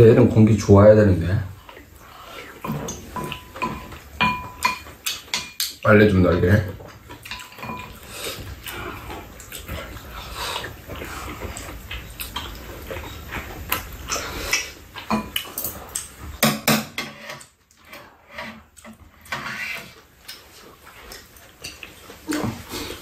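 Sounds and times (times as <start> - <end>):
slurping: 1.5 - 4.1, 6.9 - 16.2, 17.2 - 23.0
chewing: 1.5 - 5.8, 6.7 - 16.4, 17.2 - 23.0
utensils clinking on ceramic bowls: 2.6 - 5.8, 7.2 - 8.0.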